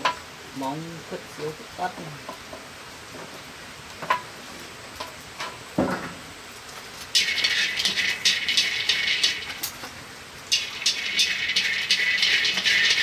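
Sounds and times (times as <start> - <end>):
kernels rattling in metal wok: 7.0 - 13.0.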